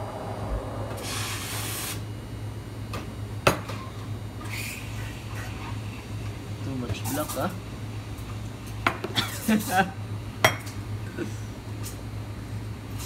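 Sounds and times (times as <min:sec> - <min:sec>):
low steady hum: 0:00.0 - 0:04.4.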